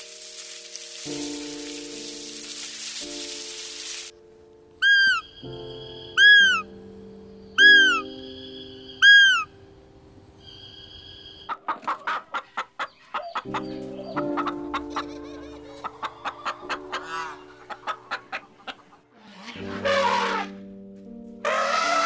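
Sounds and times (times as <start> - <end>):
soft background music: 0.0 - 22.0
high arching call: 4.8 - 6.8, 7.6 - 9.6
hens clucking: 11.5 - 19.1.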